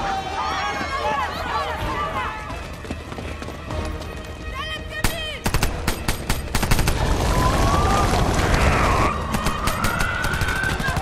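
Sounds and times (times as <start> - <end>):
sharp gunfire-like cracks: 5.4 - 7.4, 9.3 - 11.0.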